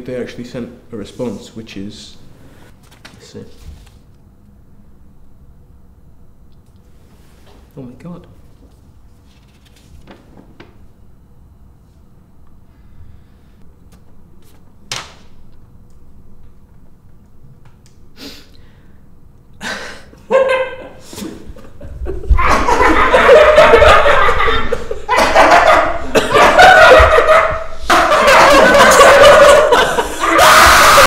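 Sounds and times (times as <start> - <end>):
man crying out loudly: 28.2 - 31.0.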